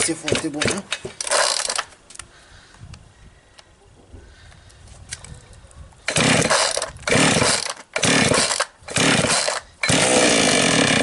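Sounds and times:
chainsaw engine cranking: 0.0 - 1.9, 6.1 - 11.0
starter cord pulls: 6.1 - 11.0.

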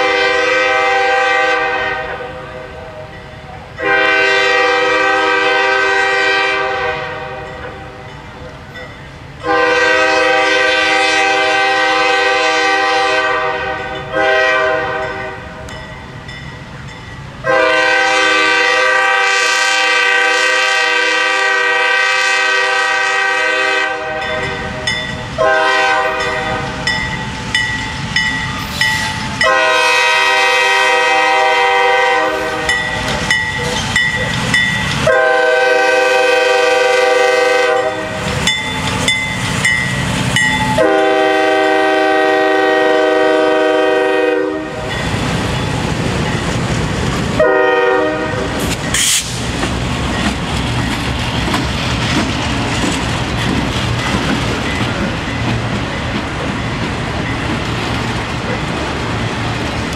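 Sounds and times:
locomotive air horn blasts: 0.0 - 3.0, 3.8 - 7.8, 9.4 - 15.6, 17.4 - 24.6, 25.4 - 26.9, 28.6 - 32.9, 35.0 - 38.2, 40.7 - 45.0, 47.4 - 49.4
train wheels clicking over rail joints: 32.5 - 35.2, 37.9 - 40.9, 48.4 - 59.9.

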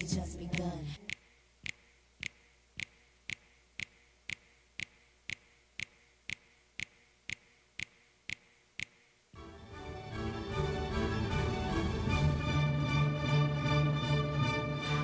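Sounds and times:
sharp ticking: 0.0 - 9.2.

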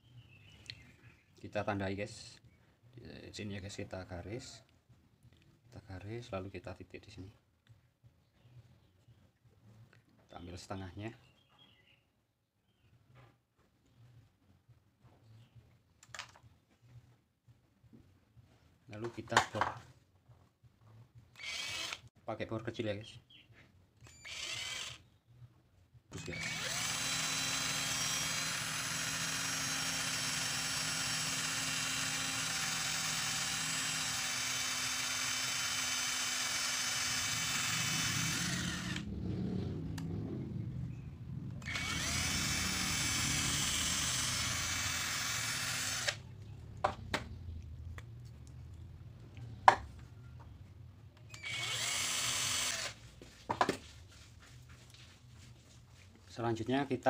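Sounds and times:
electric drill whining: 21.4 - 22.1, 24.0 - 25.0, 26.2 - 39.1, 41.6 - 46.2, 51.3 - 53.0.

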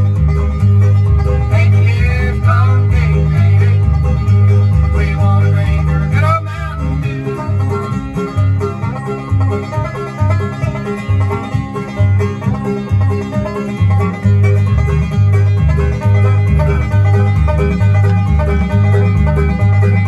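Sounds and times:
banjo picking: 0.0 - 20.0
bass line: 0.0 - 20.0
guitar: 0.0 - 20.0.

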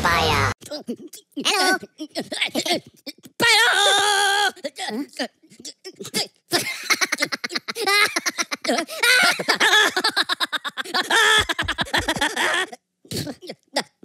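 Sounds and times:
high-pitched cartoon laughter: 6.5 - 12.8.

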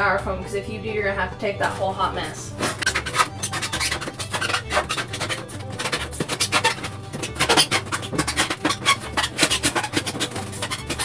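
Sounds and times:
tool cutting styrofoam: 2.5 - 11.0.

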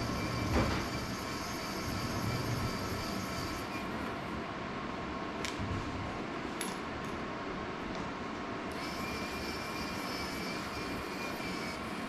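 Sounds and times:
thin high whine: 0.0 - 4.4, 8.7 - 12.0
fan blowing: 0.0 - 12.0.

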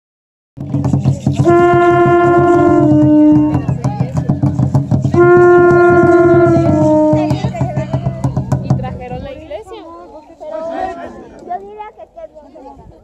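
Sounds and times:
low percussion rumble: 0.6 - 9.7
conch shell blasts: 1.3 - 3.9, 4.8 - 7.6.

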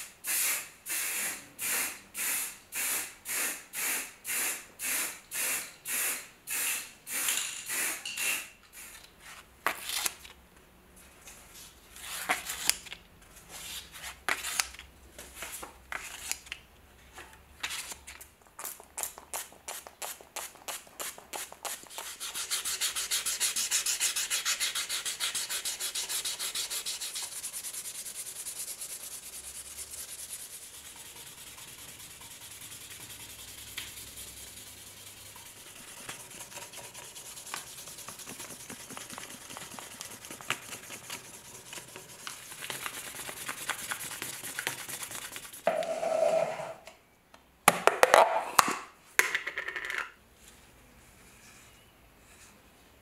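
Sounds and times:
aerosol spray puffs: 0.2 - 8.5
sandpaper being handled: 18.7 - 45.7
sanding plastic by hand: 19.4 - 45.7.

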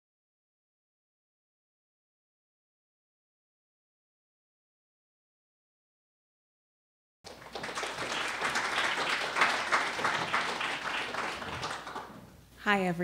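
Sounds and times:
audience applauding: 7.3 - 12.3.

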